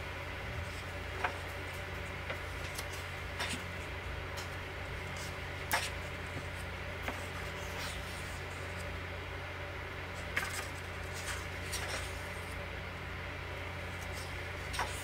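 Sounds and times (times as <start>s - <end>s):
book pages turning: 0.6s - 8.9s, 10.2s - 12.6s, 13.8s - 15.0s.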